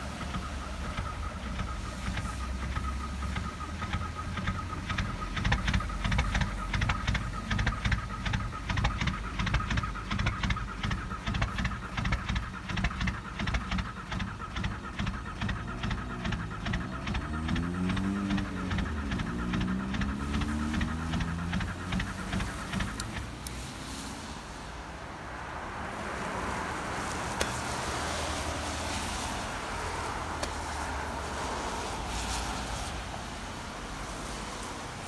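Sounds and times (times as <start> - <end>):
diesel engine clatter: 0.0 - 35.0.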